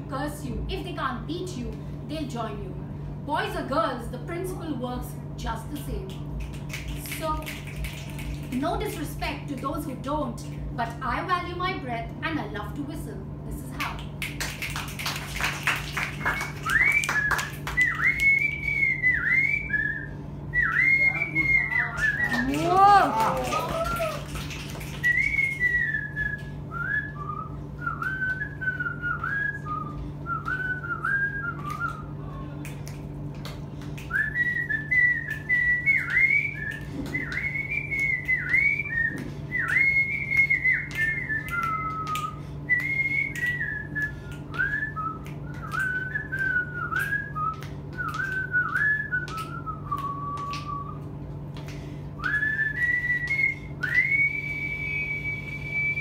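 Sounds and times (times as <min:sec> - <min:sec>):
woman whistling a melody: 0:15.6 - 0:32.2, 0:34.0 - 0:56.0.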